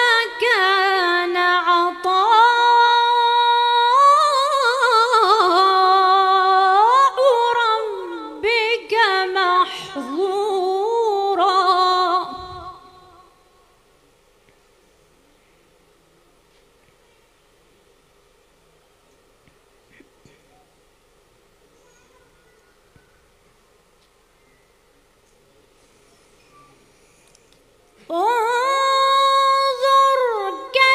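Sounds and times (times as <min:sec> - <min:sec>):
woman chanting: 0:00.0 - 0:13.6, 0:28.1 - 0:30.9.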